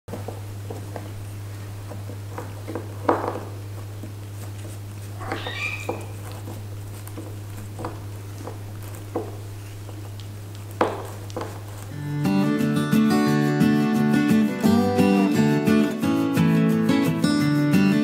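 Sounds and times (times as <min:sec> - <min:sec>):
soft rustles: 0:00.1 - 0:12.0
kitten mewing: 0:05.2 - 0:06.2.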